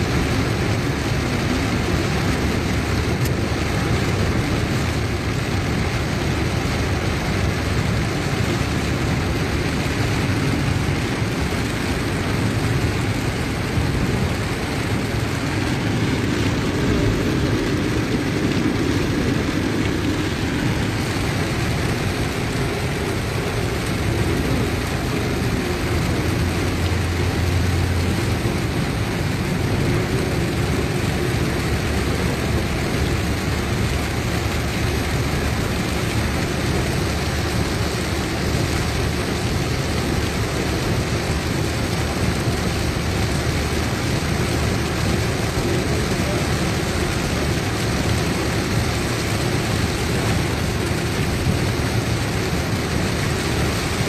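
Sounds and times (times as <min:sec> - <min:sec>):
rain and tyres hissing on wet road: 0:00.0 - 0:54.0
low rumble: 0:10.1 - 0:31.4.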